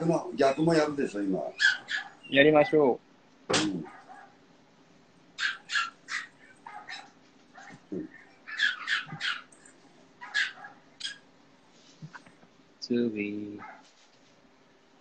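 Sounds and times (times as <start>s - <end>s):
dog whining: 1.5s - 2.9s, 5.4s - 9.6s
small dog barking: 1.6s - 2.8s, 3.6s - 4.4s, 5.4s - 9.5s, 10.2s - 11.2s, 13.6s - 13.8s.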